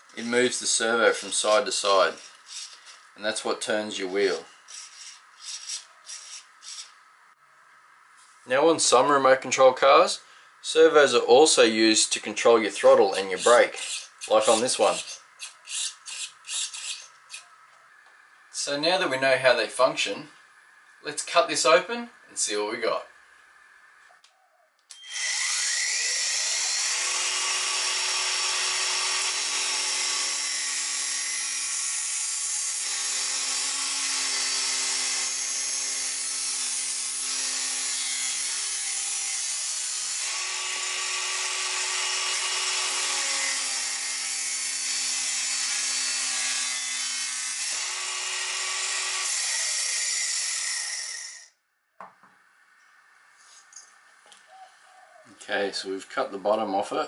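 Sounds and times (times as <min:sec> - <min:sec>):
angle grinder cutting plastic: 0:00.0 - 0:03.2, 0:04.2 - 0:07.0, 0:12.9 - 0:17.5, 0:24.9 - 0:51.5.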